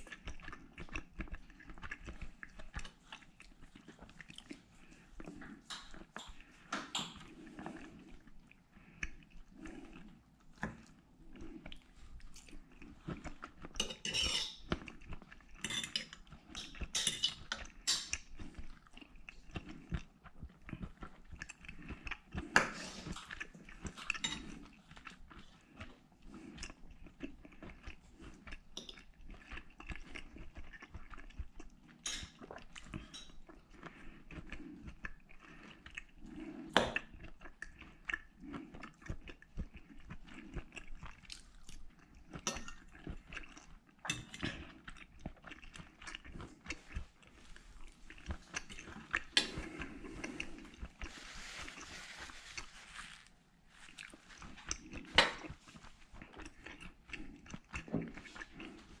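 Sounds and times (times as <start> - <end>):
chewing steak: 0.0 - 59.0
cutlery scraping plate: 13.8 - 14.7, 15.6 - 18.1, 24.1 - 24.4.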